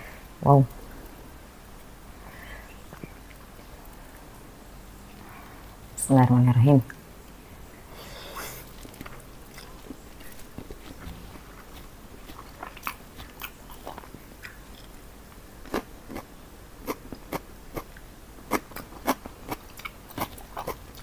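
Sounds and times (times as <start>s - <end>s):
person chewing noodles: 8.0s - 15.0s, 15.6s - 21.0s.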